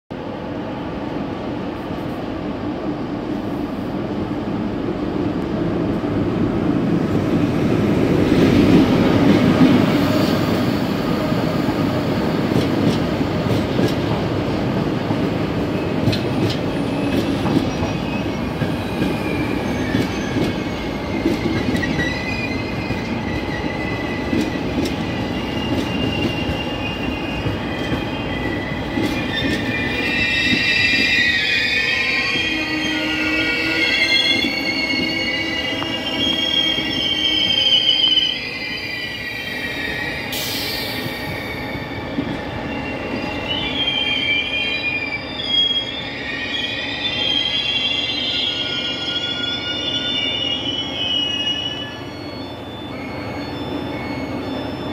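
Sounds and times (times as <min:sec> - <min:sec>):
electric locomotive passing: 0:00.3 - 0:54.9
high-pitched wheel squeal: 0:16.7 - 0:54.9.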